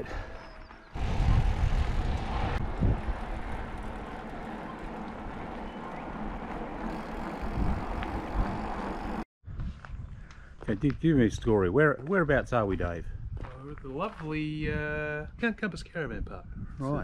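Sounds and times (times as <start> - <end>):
wind noise on microphone: 0.9 - 6.0, 6.9 - 11.6, 12.5 - 17.0
tyres rolling on asphalt: 0.9 - 9.3.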